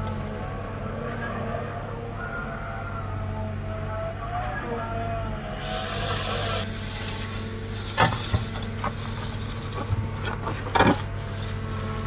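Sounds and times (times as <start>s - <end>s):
diesel engine running: 0.0s - 12.0s
bucket scraping soil: 5.6s - 12.0s.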